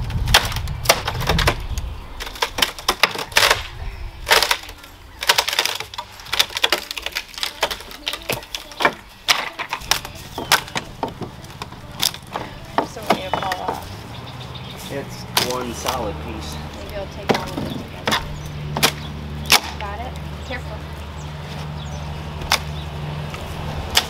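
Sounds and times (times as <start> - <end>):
wood cracking and creaking: 0.0 - 24.0.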